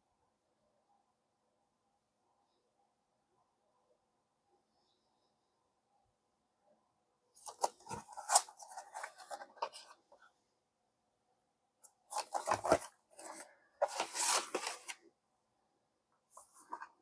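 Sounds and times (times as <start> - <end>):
plastic case and paper rustling: 7.4 - 10.2, 12.1 - 15.0.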